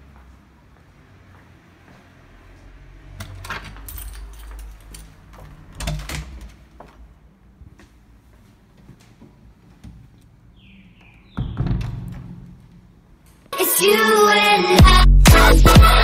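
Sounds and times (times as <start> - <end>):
keys jangling at a metal lock: 3.2 - 6.6.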